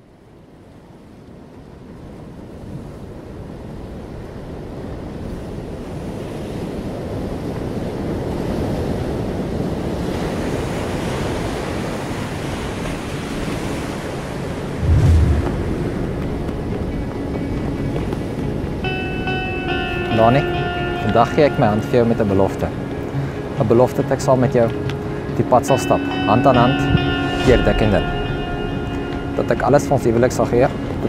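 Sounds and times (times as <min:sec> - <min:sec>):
surf washing over rocks: 0:09.0 - 0:18.8
deep boom: 0:14.8 - 0:16.8.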